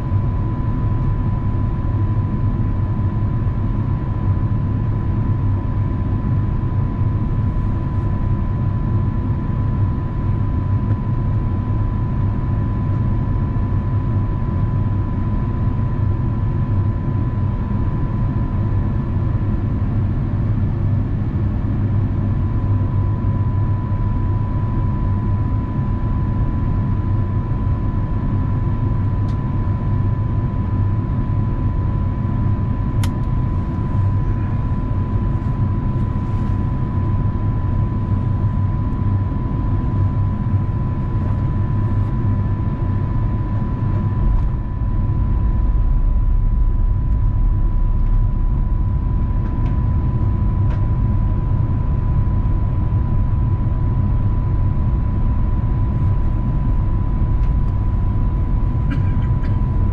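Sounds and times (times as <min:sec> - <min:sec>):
airplane cabin rumble: 0:00.0 - 0:59.9
thin steady whine: 0:22.2 - 0:59.9.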